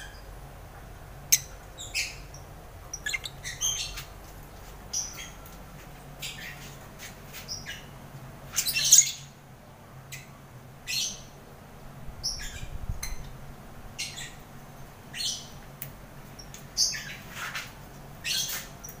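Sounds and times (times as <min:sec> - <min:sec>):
lovebirds chirping and squawking: 0:01.3 - 0:04.1, 0:04.9 - 0:05.5, 0:06.2 - 0:06.8, 0:07.4 - 0:09.3, 0:12.2 - 0:13.3, 0:14.0 - 0:14.4, 0:16.4 - 0:17.4, 0:18.2 - 0:19.0.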